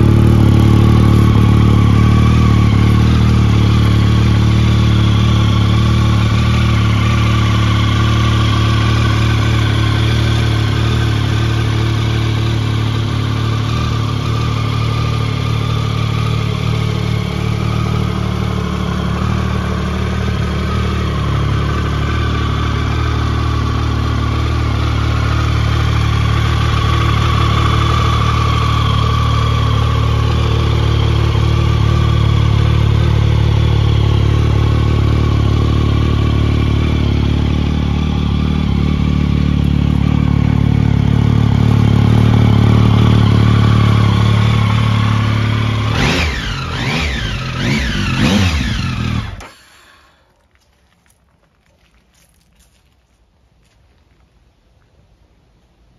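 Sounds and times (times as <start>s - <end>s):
motorcycle engine idling: 0.0s - 51.0s.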